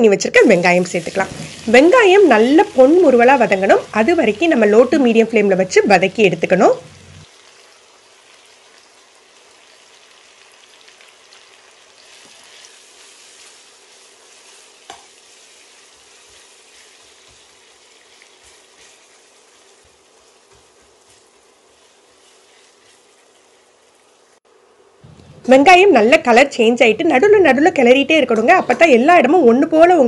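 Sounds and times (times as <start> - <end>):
onions sizzling in oil: 0.3 - 24.4
metal spatula stirring: 14.2 - 23.7.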